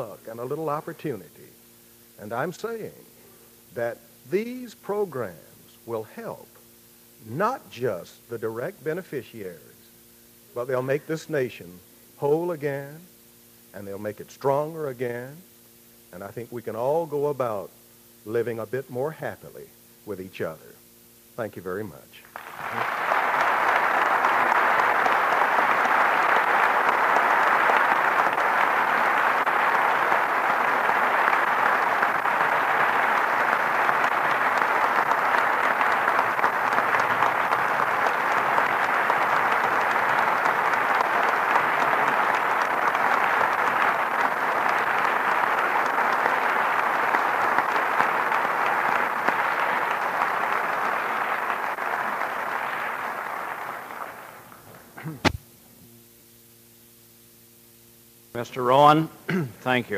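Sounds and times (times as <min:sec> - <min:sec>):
faint steady hum: 0:00.0 - 0:59.9
audience applauding: 0:22.4 - 0:54.7.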